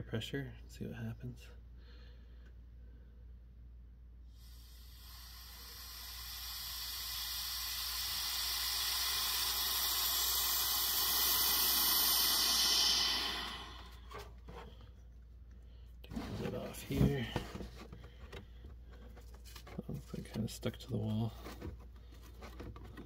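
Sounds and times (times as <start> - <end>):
air hissing into vacuum chamber: 4.3 - 14.4.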